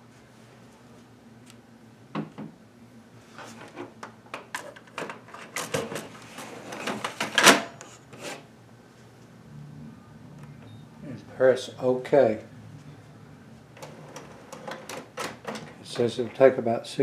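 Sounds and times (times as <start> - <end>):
faint low hum: 8.6 - 17.0.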